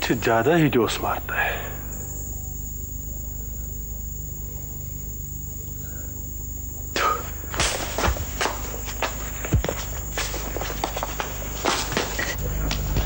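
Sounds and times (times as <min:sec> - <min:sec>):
high whine: 0:00.0 - 0:13.0
low hum: 0:00.0 - 0:13.0
footsteps and scuffling: 0:07.0 - 0:13.0.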